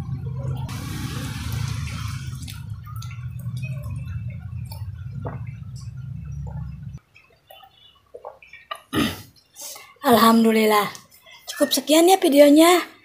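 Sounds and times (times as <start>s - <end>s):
steady low hum: 0.0s - 7.0s
person gulping water: 4.6s - 9.5s.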